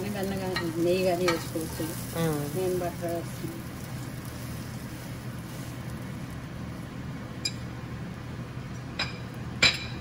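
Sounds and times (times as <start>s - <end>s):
steady low hum: 0.0s - 10.0s
metal utensil clinking on skillet: 0.1s - 2.1s.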